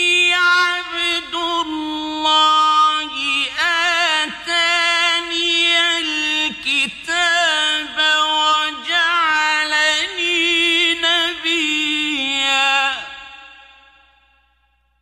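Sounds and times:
man chanting melodically: 0:00.0 - 0:14.3.

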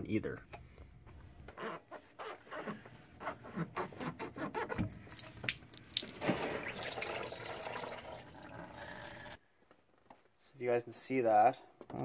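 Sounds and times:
hand rubbing a rubber hose: 0:01.5 - 0:05.0.

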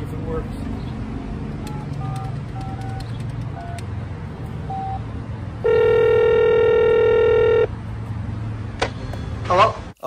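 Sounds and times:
phone keypad tones beeping: 0:01.7 - 0:03.8, 0:04.7 - 0:05.0, 0:05.6 - 0:07.7
telephone ringback tone: 0:05.6 - 0:07.7.

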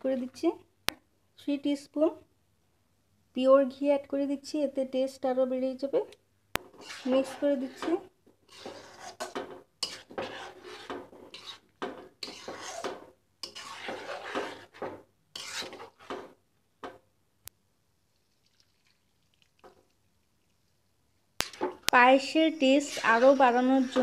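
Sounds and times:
spatula scraping pudding in pot: 0:06.6 - 0:16.4, 0:21.4 - 0:24.0.

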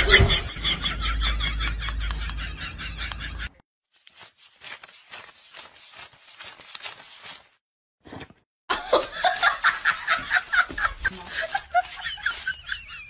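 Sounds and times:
banknotes being riffled: 0:03.9 - 0:07.6, 0:09.4 - 0:13.0.

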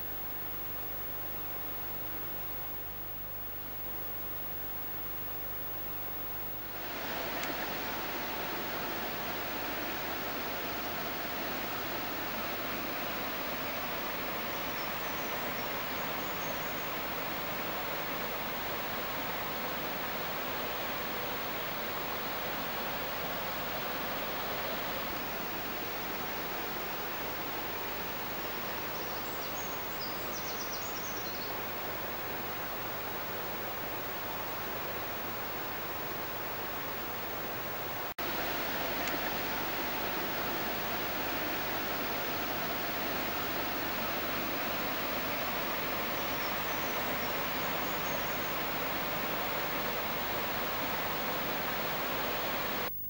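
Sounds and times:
fast-flowing river rushing: 0:06.8 - 0:28.8, 0:38.2 - 0:52.9.

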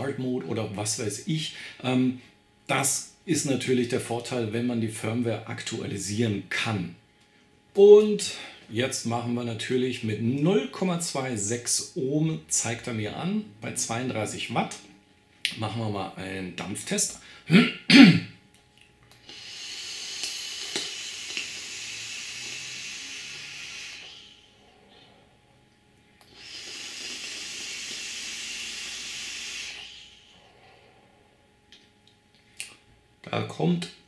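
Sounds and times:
hiss of vapour blown out: 0:19.2 - 0:25.2, 0:26.3 - 0:30.8
hissing draw through vape: 0:19.2 - 0:25.3, 0:26.2 - 0:31.0
atomizer gurgle: 0:26.2 - 0:30.8.

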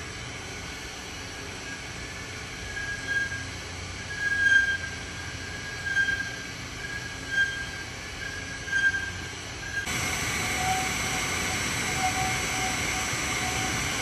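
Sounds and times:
coffee roaster machine noise: 0:08.4 - 0:14.0.

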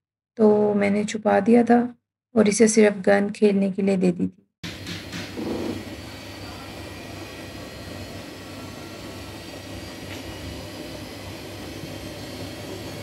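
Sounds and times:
washing machine drum turning: 0:04.6 - 0:06.0
steady low hum: 0:04.7 - 0:13.0.

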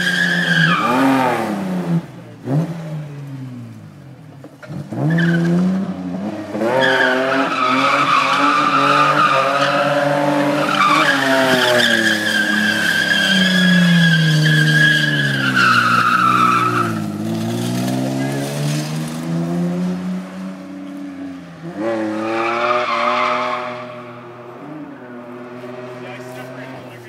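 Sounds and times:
tyres squealing: 0:06.8 - 0:17.3.

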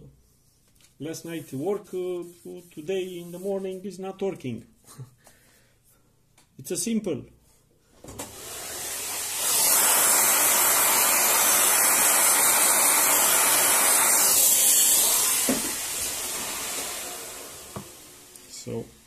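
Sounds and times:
vacuum cleaner hissing: 0:08.0 - 0:19.0.

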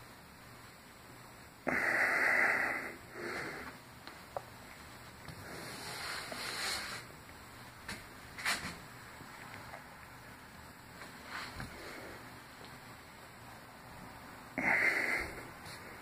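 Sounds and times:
person breathing heavily: 0:01.6 - 0:03.8, 0:05.3 - 0:06.9, 0:11.4 - 0:12.4, 0:14.5 - 0:16.0.

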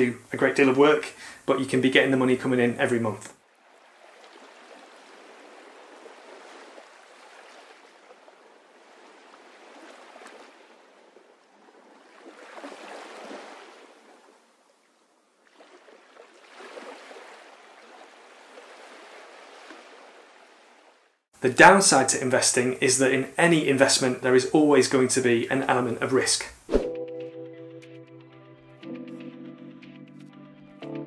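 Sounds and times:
gentle sea waves washing: 0:03.4 - 0:21.3.

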